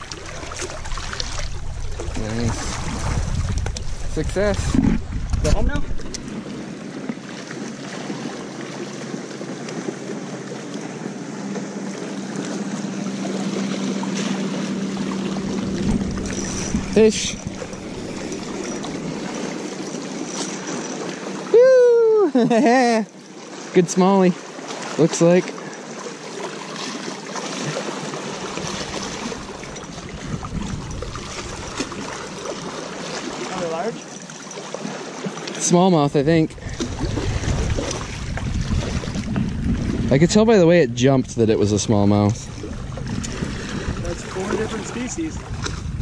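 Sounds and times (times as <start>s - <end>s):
steady hum: 0.0s - 6.3s, 14.5s - 19.5s
wind buffeting microphone: 0.0s - 6.9s, 15.0s - 19.7s, 28.4s - 32.8s, 36.2s - 46.0s
water lapping against rocks: 0.0s - 21.6s, 23.0s - 46.0s.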